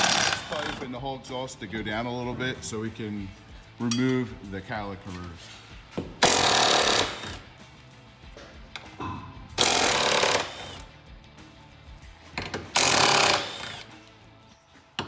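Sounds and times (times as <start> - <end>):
impact wrench hammering: 0.0 - 0.8, 6.0 - 7.4, 9.0 - 10.8, 12.4 - 13.9.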